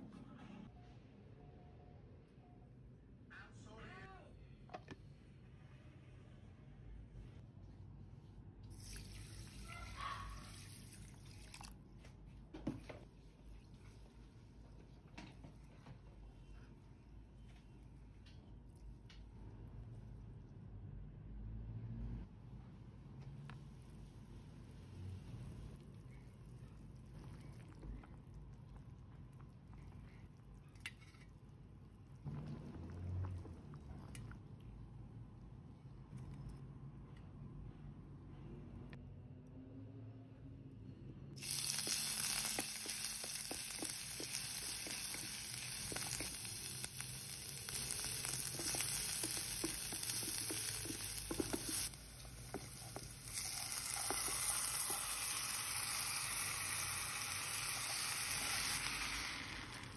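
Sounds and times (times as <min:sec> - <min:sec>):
water pouring into a bowl of rice: 0:08.7 - 0:11.8, 0:41.4 - 0:59.9
broth dripping into a pot: 0:25.0 - 0:36.5, 0:41.4 - 0:59.9.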